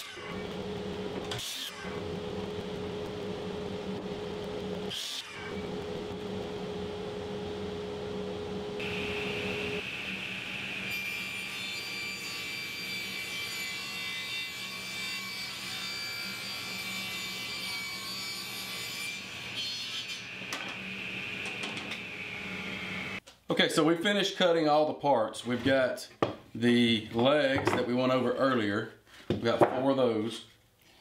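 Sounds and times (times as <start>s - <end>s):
table saw motor hum: 0.0s - 12.2s
saw blade cutting wood: 1.2s - 2.0s.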